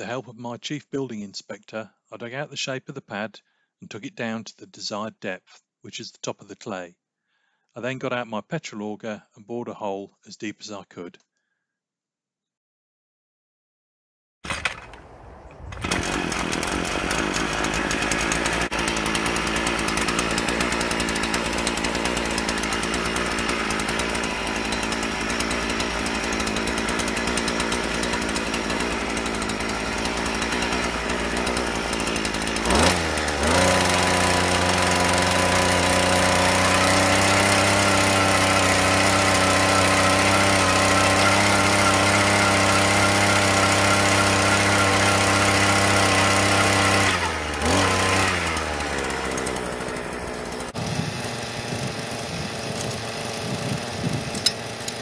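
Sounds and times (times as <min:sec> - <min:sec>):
earth auger engine drilling soil: 0:14.5 - 0:55.0.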